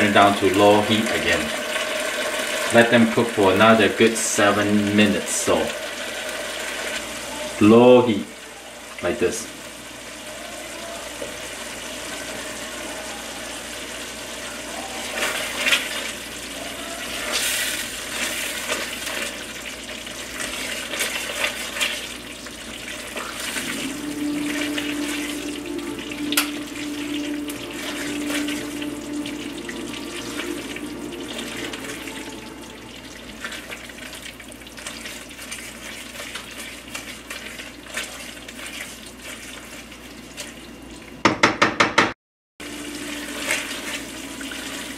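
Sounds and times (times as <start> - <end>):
stew simmering and popping: 13.6 - 42.1
spatula stirring and scraping pan: 17.0 - 22.2
steady hum: 23.1 - 34.7.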